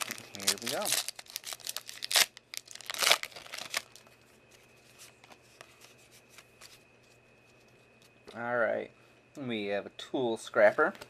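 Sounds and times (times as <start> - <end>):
foil wrapper crinkling: 0.0 - 4.2.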